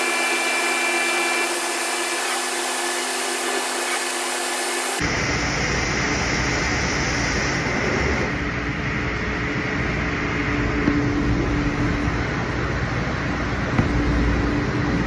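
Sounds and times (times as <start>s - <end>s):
grinder grinding with coolant spray: 0.0s - 5.0s
steady hum: 0.0s - 15.0s.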